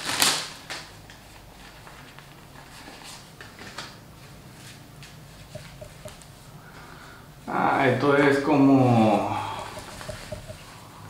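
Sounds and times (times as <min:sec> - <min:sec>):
low steady hum: 0:05.6 - 0:07.4, 0:09.6 - 0:11.0.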